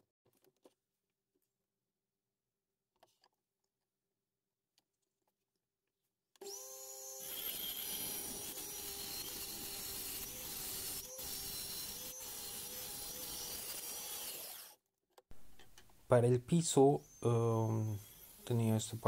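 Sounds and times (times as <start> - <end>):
saw blade cutting wood: 6.4 - 14.8
table saw motor whining: 6.4 - 14.8, 16.8 - 19.0.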